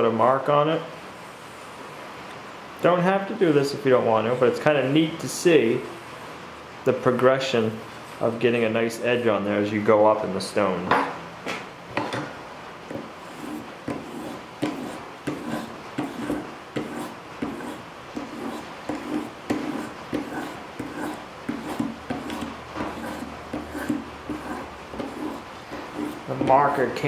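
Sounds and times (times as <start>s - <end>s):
sharpening stone scraping knife: 13.2s - 26.3s.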